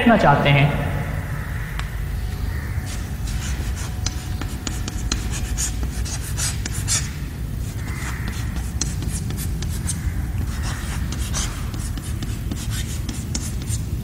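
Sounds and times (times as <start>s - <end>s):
steady low hum: 0.0s - 14.0s
chalk tapping and scratching on chalkboard: 2.9s - 14.0s.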